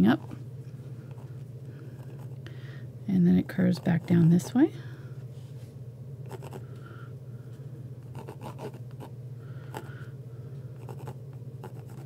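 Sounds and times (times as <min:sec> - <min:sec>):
steady low hum: 0:00.0 - 0:12.0
pencil scratching on canvas: 0:06.3 - 0:06.6, 0:08.1 - 0:09.1, 0:10.8 - 0:12.0.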